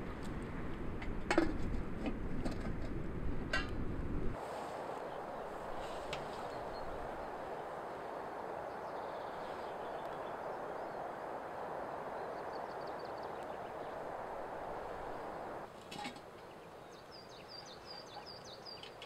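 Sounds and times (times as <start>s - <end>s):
rushing open-air noise: 0.0s - 19.0s.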